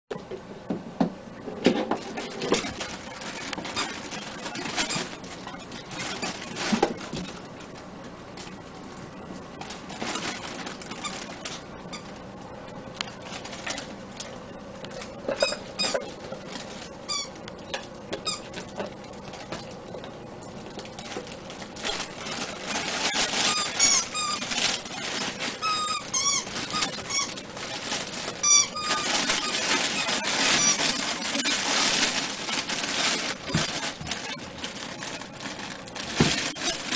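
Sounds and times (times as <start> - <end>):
puppies yipping and whining: 22.3 - 31.7.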